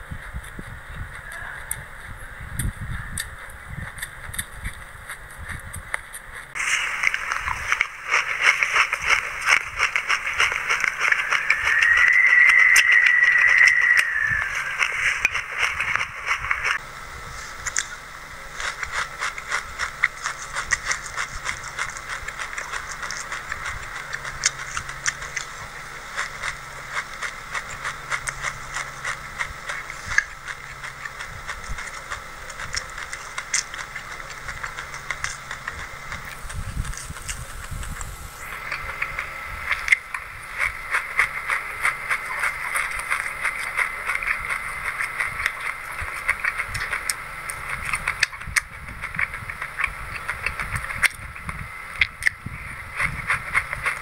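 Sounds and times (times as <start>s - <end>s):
chewing crunchy seeds: 0.0s - 54.0s.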